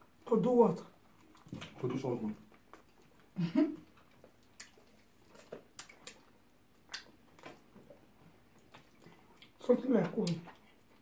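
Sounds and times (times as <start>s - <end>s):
wet chewing smacks and squelches: 0.9s - 11.0s.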